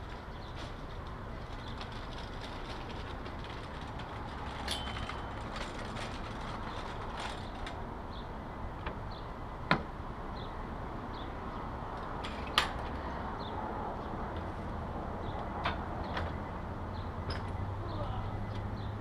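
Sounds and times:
wheelchair rattling and clicking: 0.0s - 8.0s.

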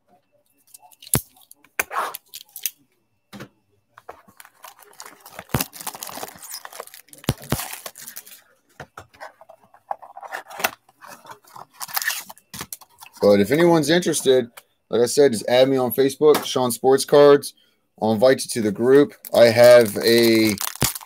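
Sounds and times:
wrapping tearing and crinkling: 0.7s - 2.7s, 4.3s - 8.4s, 11.0s - 13.2s, 19.2s - 21.0s.

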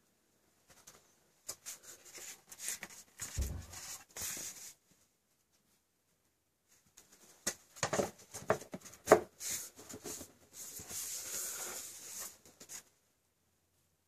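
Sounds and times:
cardboard rubbing and sliding: 1.8s - 4.8s, 9.0s - 12.8s.

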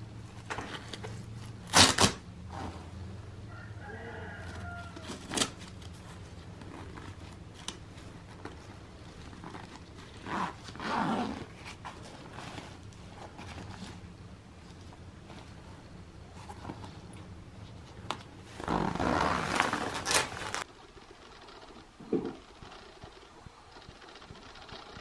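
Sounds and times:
low steady hum: 0.0s - 25.0s
fabric rustling and zipper: 2.4s - 3.2s, 4.4s - 21.8s.

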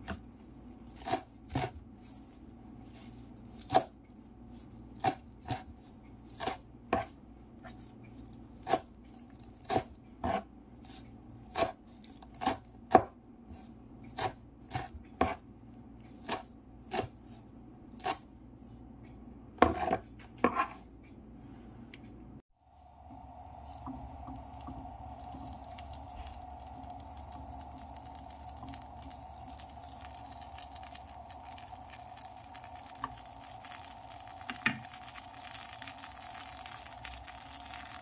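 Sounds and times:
knife chopping on wooden board: 9.6s - 10.4s, 14.2s - 15.4s, 16.2s - 17.2s, 19.6s - 20.8s.

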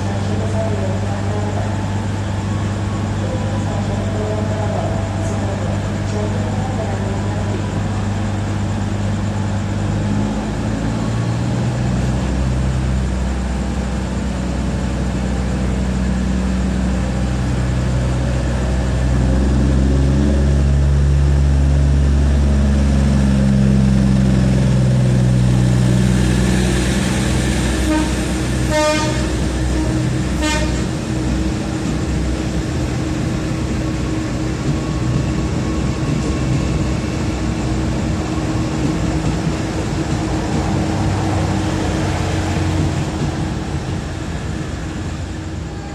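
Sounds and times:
diesel train engine drone: 0.0s - 45.9s
train horn toots: 27.8s - 31.0s.

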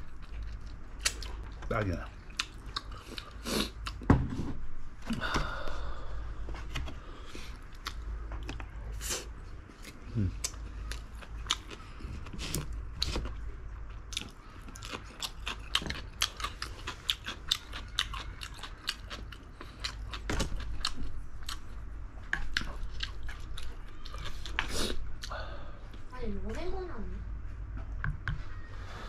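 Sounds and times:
person chewing with wet smacks: 0.0s - 4.1s, 7.5s - 26.0s
faint low hum: 0.0s - 29.0s.

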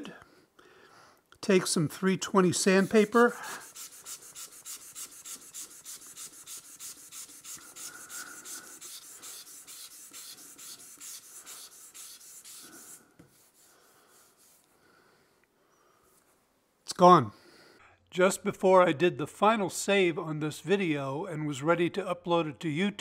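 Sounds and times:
hand sanding wood: 2.2s - 14.7s.

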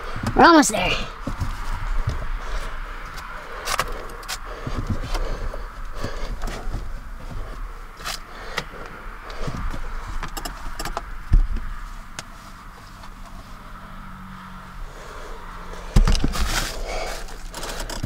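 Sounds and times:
scrapes and rustles in insulation: 1.1s - 8.3s, 15.8s - 18.0s.

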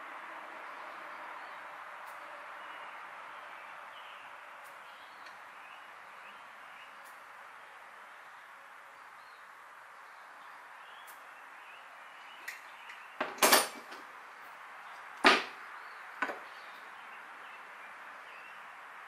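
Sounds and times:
steady background hiss: 0.0s - 19.0s
hand tools knocking on wood: 15.2s - 15.5s.

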